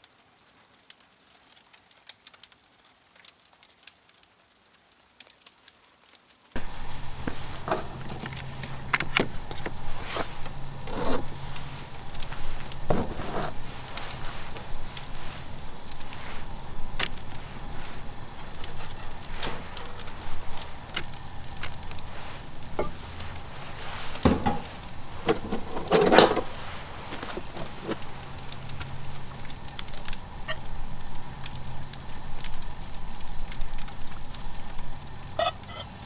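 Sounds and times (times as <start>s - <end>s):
faint steady hum: 6.6s - 36.0s
cookware and utensils clinking: 24.2s - 26.6s.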